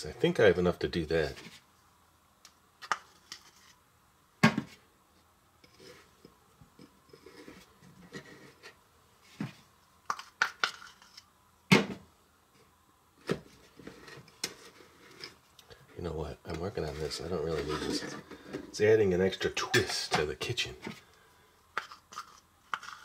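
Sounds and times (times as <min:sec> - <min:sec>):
knife scraping frosting: 0:21.8 - 0:23.0.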